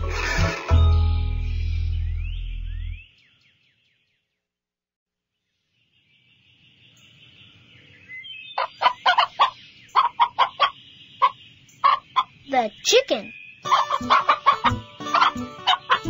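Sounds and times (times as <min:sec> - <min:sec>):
small birds chirping: 0:05.6 - 0:16.0
chicken clucking: 0:08.6 - 0:12.3, 0:13.7 - 0:16.0.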